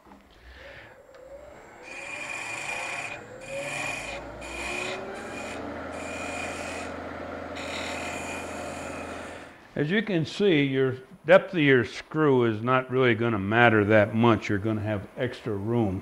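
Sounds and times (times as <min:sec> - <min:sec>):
low hum of lathe: 0:00.0 - 0:09.7
scraper scraping wood on lathe: 0:01.8 - 0:09.6.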